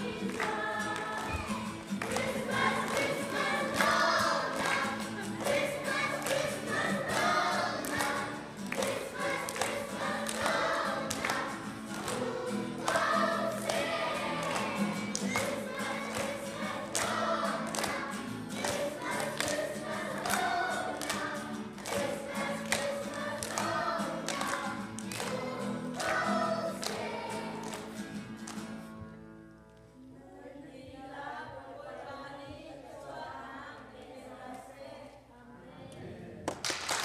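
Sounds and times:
children's choir singing: 0.0 - 28.3, 30.1 - 36.5
acoustic guitar strumming: 0.0 - 29.4.

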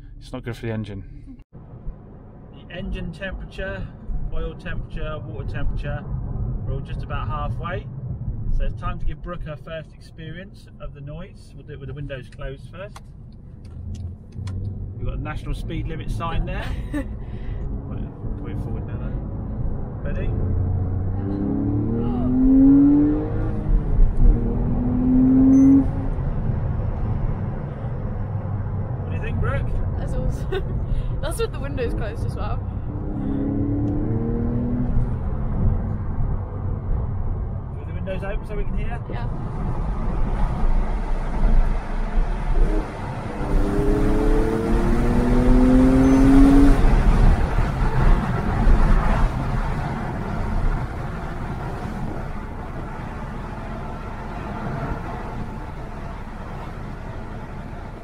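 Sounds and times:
road and wind noise: 0.0 - 58.0
car engine accelerating hard: 13.6 - 30.2, 30.8 - 58.0.

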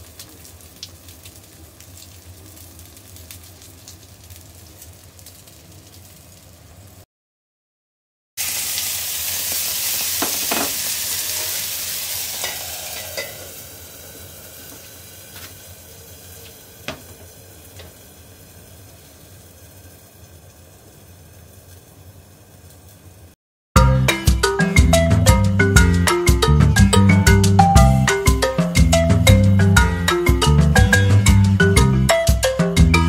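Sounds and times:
ham and eggs sizzling in skillet: 0.0 - 6.6, 8.4 - 23.4.

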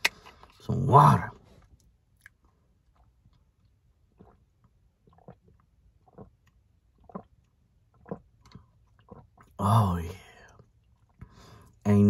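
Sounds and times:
water gulps from plastic bottle: 2.9 - 11.8.

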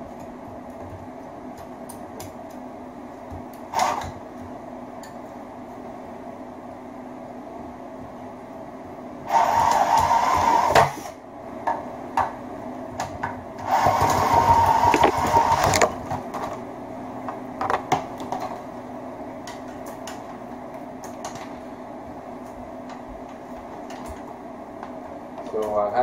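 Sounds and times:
drill whine: 9.3 - 10.8.

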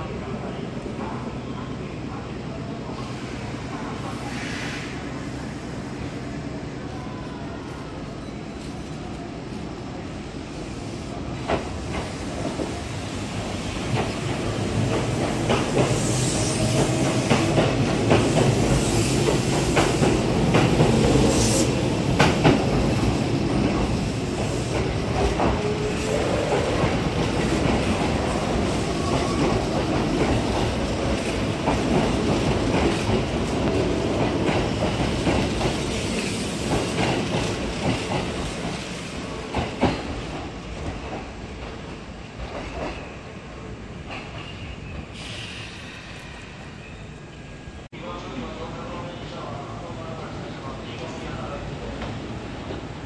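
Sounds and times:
electric train passing: 10.0 - 41.4.

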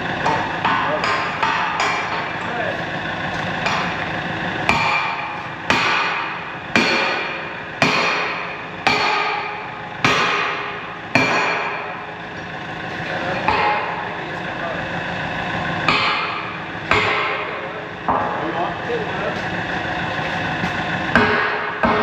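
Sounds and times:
hammer blows ringing on metal: 0.2 - 2.4, 4.6 - 12.1, 13.4 - 14.1, 15.8 - 18.4, 21.1 - 22.0.

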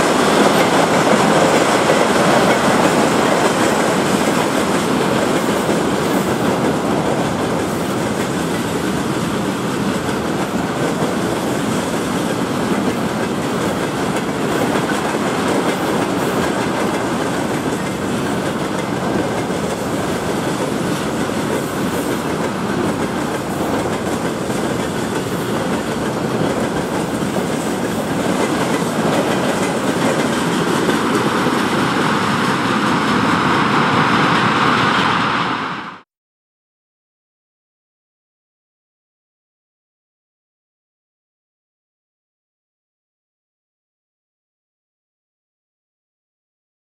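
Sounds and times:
train wheels rumbling and clattering: 0.0 - 35.4.

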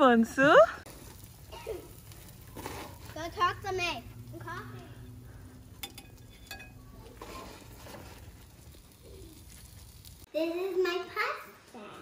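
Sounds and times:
steady low hum: 0.8 - 7.2
metal tongs clinking on pan: 5.8 - 7.2.

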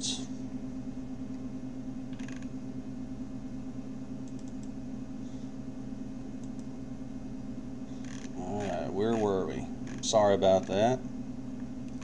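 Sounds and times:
low electrical hum: 0.0 - 12.0
computer mouse and keyboard clicks: 2.1 - 2.5, 4.2 - 4.7.

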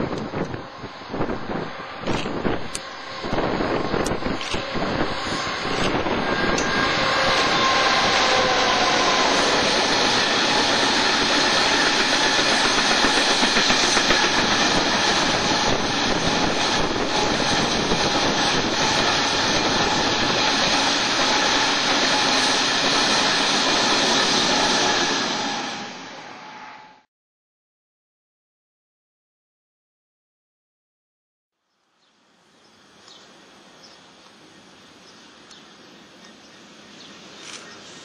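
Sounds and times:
wagons rumbling over rails: 0.0 - 26.7
freight locomotive passing: 0.0 - 27.0.

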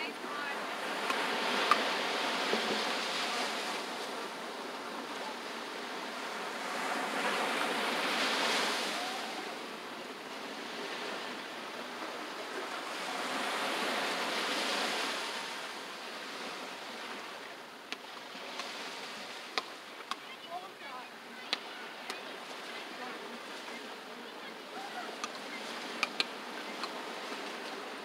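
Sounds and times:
ocean surf breaking: 0.0 - 28.0.

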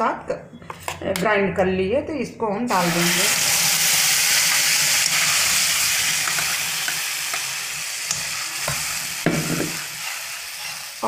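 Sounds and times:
paste sizzling in hot oil: 2.7 - 11.0.

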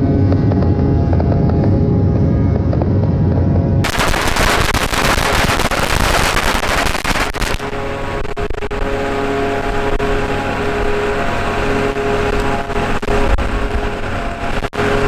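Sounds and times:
loud rushing noise: 3.0 - 15.0
heavy machinery engine humming: 6.6 - 15.0.

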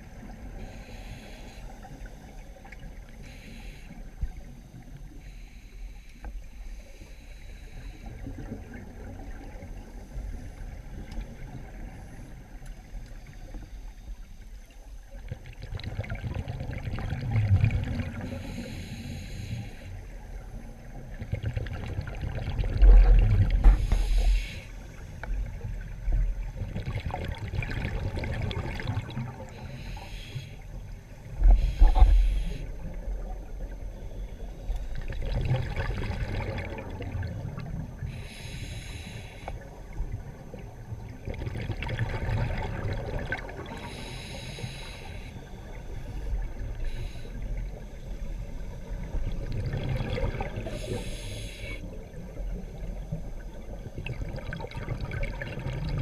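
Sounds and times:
exhaled air bubbling underwater: 0.0 - 56.0
regulator hissing inhalation: 0.6 - 1.8, 18.3 - 19.9, 23.7 - 24.8, 29.6 - 30.6, 31.6 - 32.7, 38.1 - 39.6, 43.8 - 45.4, 50.6 - 51.9.

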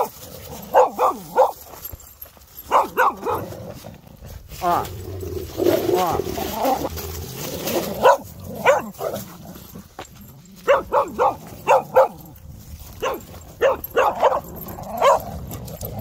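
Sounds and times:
dog barking: 0.7 - 1.6, 2.7 - 3.5, 8.0 - 9.2, 10.6 - 12.3, 13.0 - 15.3.

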